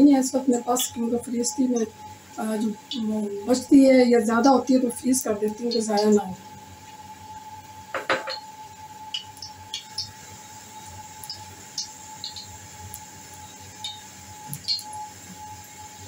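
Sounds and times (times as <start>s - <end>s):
faint steady tone: 5.4s - 16.0s.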